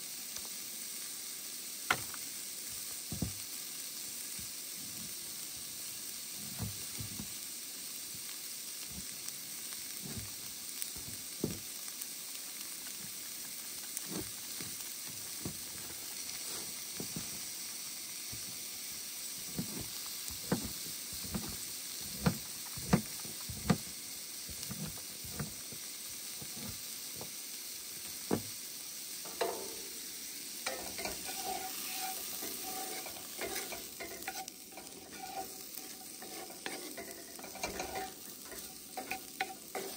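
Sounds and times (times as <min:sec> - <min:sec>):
vegetables sizzling in a pan: 0:00.0 - 0:39.9
spatula scraping pan: 0:19.6 - 0:23.8, 0:24.5 - 0:25.6, 0:26.4 - 0:26.8, 0:29.3 - 0:30.0, 0:30.6 - 0:39.9.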